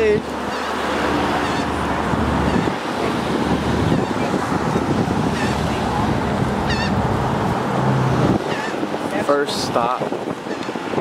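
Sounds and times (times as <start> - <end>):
wind blowing over microphone: 0.0 - 11.0.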